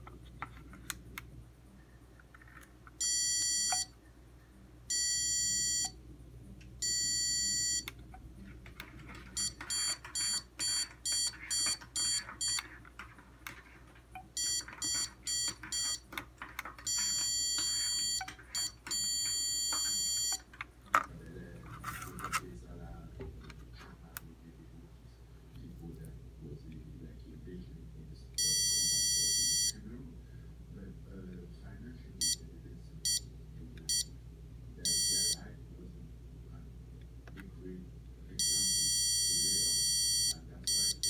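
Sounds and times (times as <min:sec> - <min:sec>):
stud sensor beeping: 0:03.0 - 0:04.0, 0:04.9 - 0:06.0, 0:06.8 - 0:08.0, 0:09.3 - 0:12.8, 0:14.2 - 0:20.5, 0:28.4 - 0:29.8, 0:32.2 - 0:32.4, 0:33.0 - 0:33.3, 0:33.9 - 0:34.1, 0:34.9 - 0:35.5, 0:38.4 - 0:41.0.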